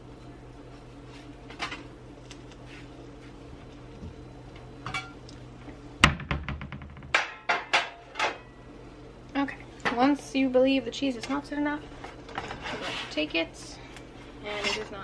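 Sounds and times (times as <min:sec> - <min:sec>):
low steady hum: 0:00.0 - 0:15.0
plate clattering on metal pans: 0:07.1 - 0:08.4.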